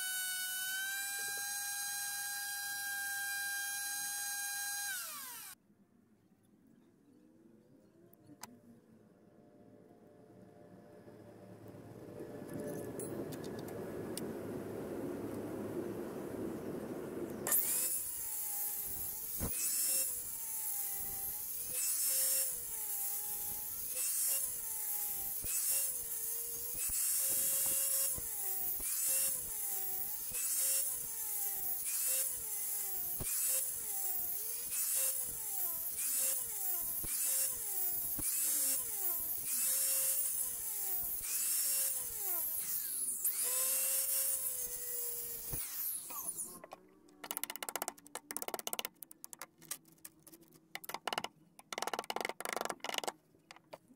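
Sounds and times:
circular saw cutting wood: 0:00.0 - 0:05.6, 0:17.3 - 0:47.7.

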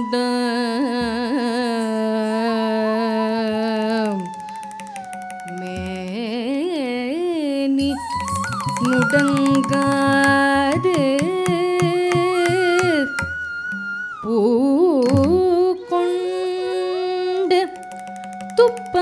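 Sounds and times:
gliding melody on long notes: 0:03.7 - 0:06.6, 0:07.8 - 0:14.8, 0:15.8 - 0:19.0
rapid sharp percussive strokes: 0:04.0 - 0:06.4, 0:08.0 - 0:13.4, 0:17.7 - 0:19.0.

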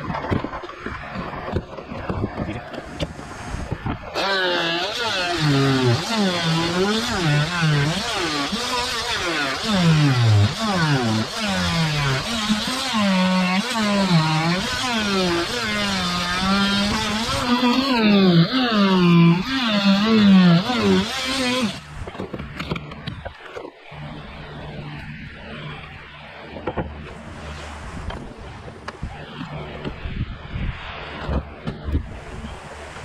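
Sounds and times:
power tool motor cutting wood: 0:04.1 - 0:23.0.

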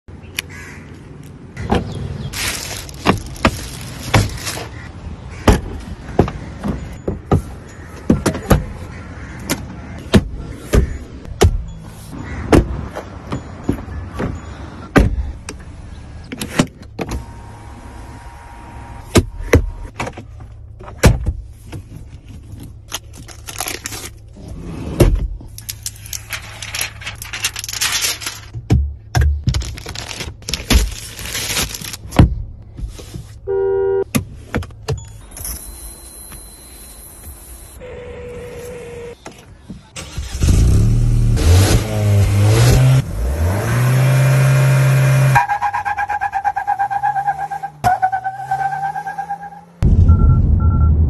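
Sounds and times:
plastic wrap rustling: 0:02.3 - 0:04.8, 0:26.0 - 0:28.5, 0:29.6 - 0:32.1
short electronic beep: 0:50.0 - 0:51.0.

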